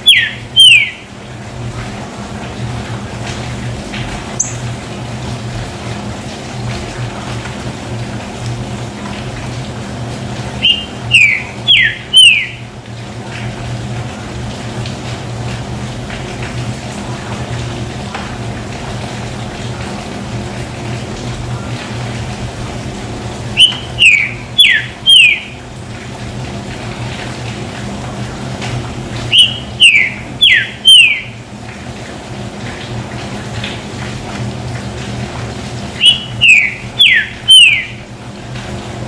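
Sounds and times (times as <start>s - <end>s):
bird singing whistled notes: 0.0s - 1.0s, 10.6s - 12.6s, 23.6s - 25.5s, 29.3s - 31.3s, 36.0s - 38.0s
low background hum: 0.0s - 39.0s.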